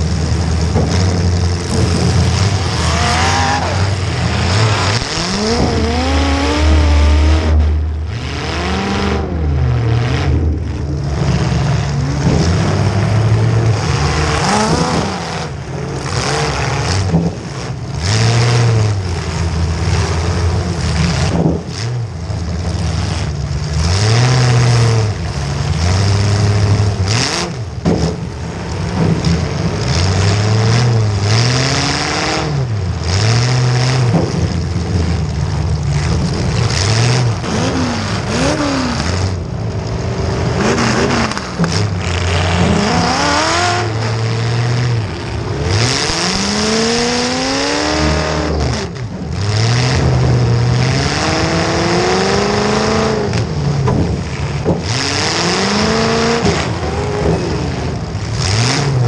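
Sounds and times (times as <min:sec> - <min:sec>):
car engine revving: 0:00.0 - 0:59.0.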